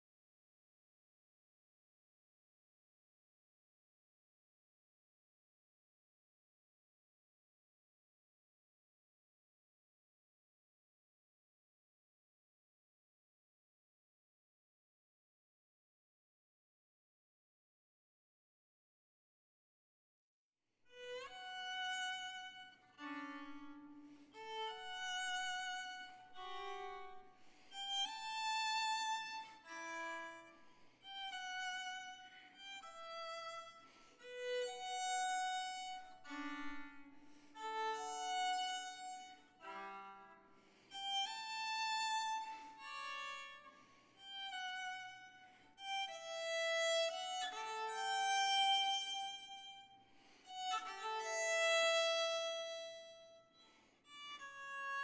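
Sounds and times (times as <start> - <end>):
violin slow melody: 20.9 - 55.0.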